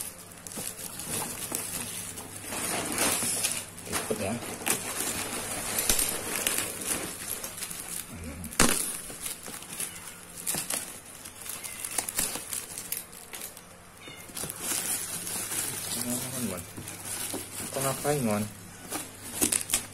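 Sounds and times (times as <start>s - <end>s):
bubble wrap crinkling: 0.0s - 19.9s.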